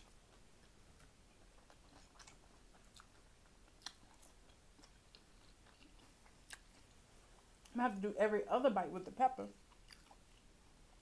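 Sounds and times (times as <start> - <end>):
close-up chewing: 0.0 - 7.8, 9.5 - 11.0.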